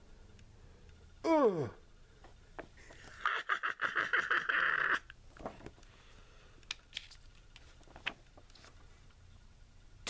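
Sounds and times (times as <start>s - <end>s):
comic book pages rustling: 6.8s - 8.9s.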